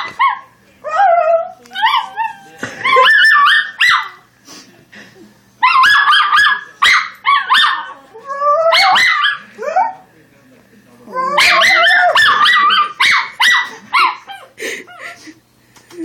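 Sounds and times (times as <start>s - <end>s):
puppy howling and yipping: 0.0s - 4.2s, 5.6s - 10.0s, 11.1s - 14.5s.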